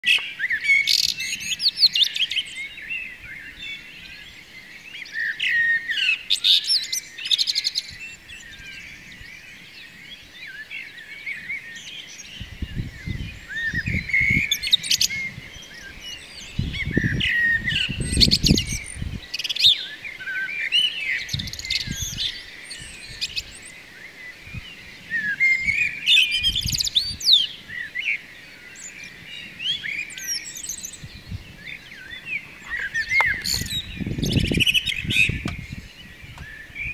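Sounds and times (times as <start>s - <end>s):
songbirds chirping: 0.0s - 36.9s.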